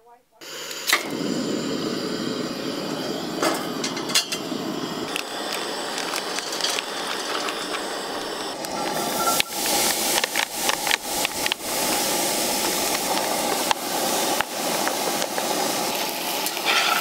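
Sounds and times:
camp stove burner hissing: 0:00.4 - 0:17.0
utensils clicking on cookware: 0:03.4 - 0:04.5, 0:05.1 - 0:07.9, 0:08.6 - 0:17.0
faint utensil ticks: 0:09.4 - 0:11.6.

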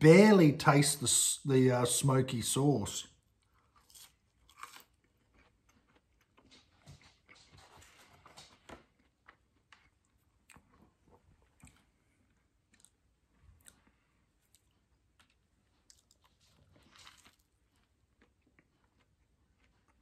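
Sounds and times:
person chewing fries: 0:03.2 - 0:20.0.

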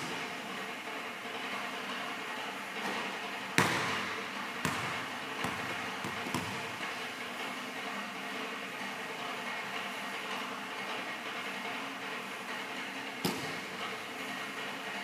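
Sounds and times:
basketball bouncing on hardwood floor: 0:03.6 - 0:06.8, 0:13.2 - 0:13.6.

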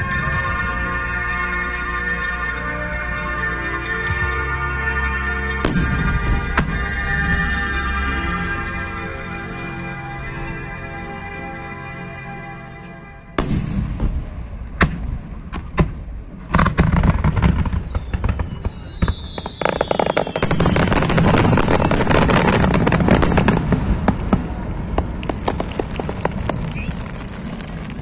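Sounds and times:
background music: 0:00.0 - 0:14.4
firework whistle falling in pitch: 0:05.5 - 0:09.0, 0:17.4 - 0:23.6
firework crackle: 0:05.6 - 0:08.9, 0:13.4 - 0:28.0.

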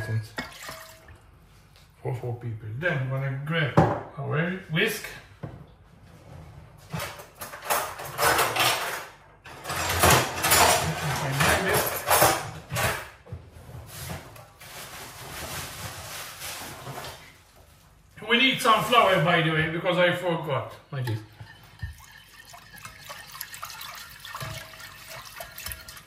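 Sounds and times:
wire whisk scraping in a pan: 0:21.3 - 0:26.0.

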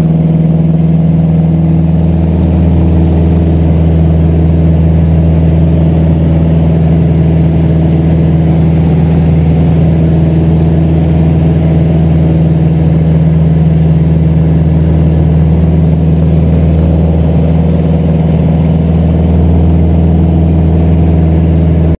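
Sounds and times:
aircraft engine and propeller droning: 0:00.0 - 0:22.0.

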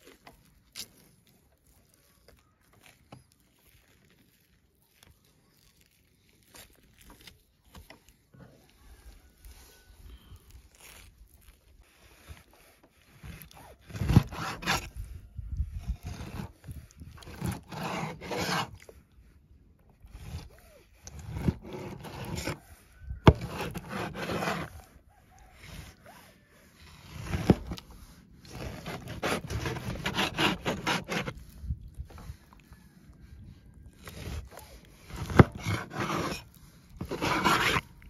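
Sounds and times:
scraping strokes against wood: 0:06.5 - 0:38.0.

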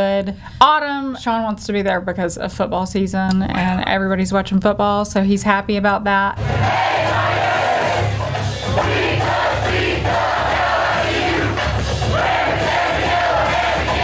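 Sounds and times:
crowd singing together: 0:06.4 - 0:14.0
music: 0:06.4 - 0:14.0
people shouting: 0:06.4 - 0:14.0.

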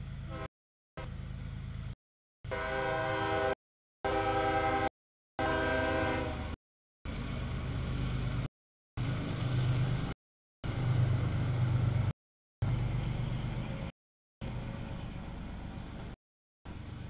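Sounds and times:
freight train rumbling past: 0:00.0 - 0:17.0
locomotive horn: 0:00.3 - 0:01.1, 0:02.5 - 0:06.6.

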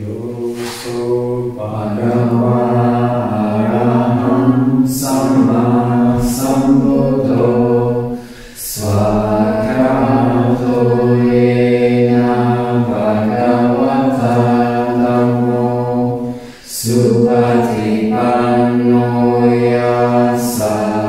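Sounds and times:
low voices chanting: 0:00.0 - 0:21.0.

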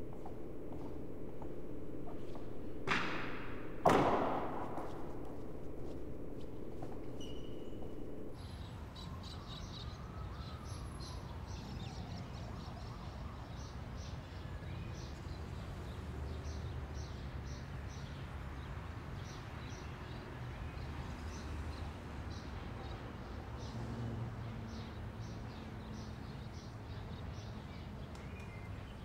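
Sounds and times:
low hum: 0:00.0 - 0:08.4
steady low rumble: 0:00.0 - 0:08.4
small birds chirping: 0:00.0 - 0:08.5.

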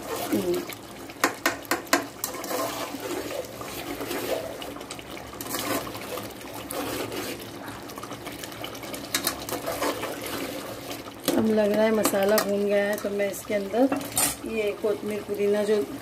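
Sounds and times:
gravy bubbling: 0:00.0 - 0:16.0
wet stirring of gravy: 0:00.0 - 0:16.0
ladle knocking against pot: 0:01.2 - 0:02.1.

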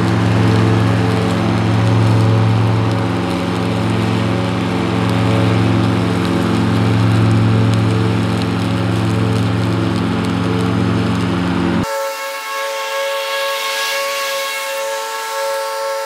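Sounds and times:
twigs crackling: 0:00.0 - 0:11.9
diesel mower engine: 0:00.0 - 0:12.1.

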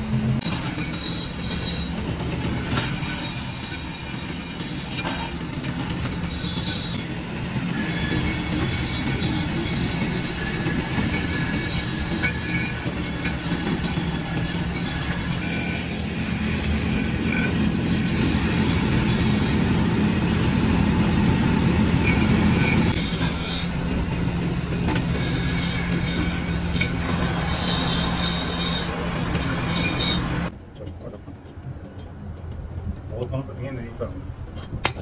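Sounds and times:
drill bit cutting metal: 0:02.7 - 0:20.1, 0:22.0 - 0:30.5.

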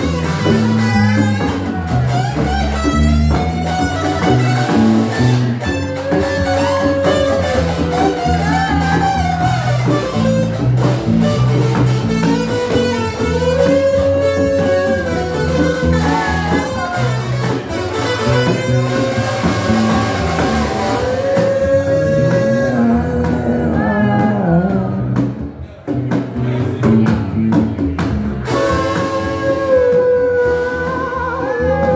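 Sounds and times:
brass horns melody: 0:00.0 - 0:22.5, 0:28.4 - 0:30.2
bass line: 0:00.0 - 0:31.9
live band playing: 0:00.0 - 0:31.9.

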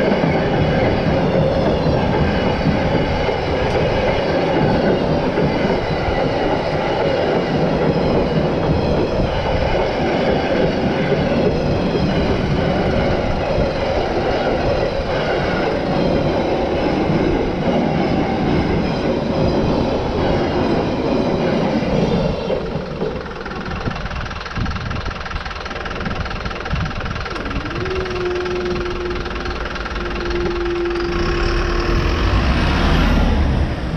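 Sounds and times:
freight train wheels rumbling: 0:00.0 - 0:33.9
road vehicles moving off: 0:25.3 - 0:33.9
steady tone: 0:27.2 - 0:33.9.

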